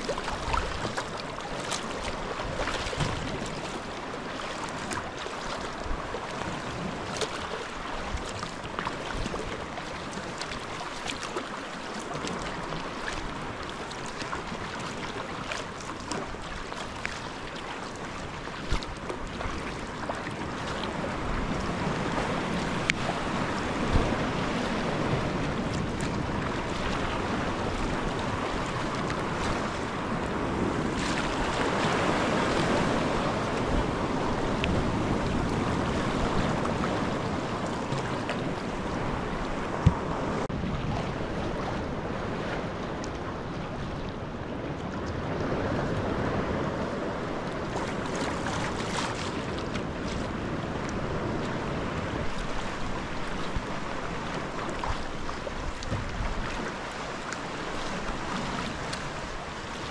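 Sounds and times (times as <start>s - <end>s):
sea water splashing and lapping: 0.0s - 59.9s
wind buffeting microphone: 18.0s - 59.9s.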